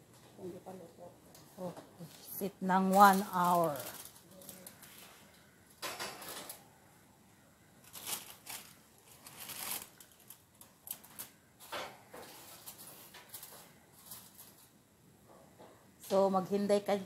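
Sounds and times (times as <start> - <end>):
aluminium foil crinkling: 2.0 - 6.6, 7.8 - 14.8.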